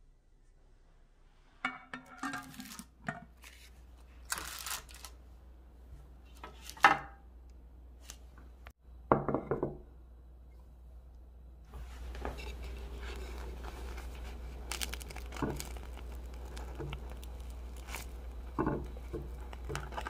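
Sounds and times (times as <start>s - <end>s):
parchment paper rustle: 2.4s - 5.2s, 11.8s - 20.0s.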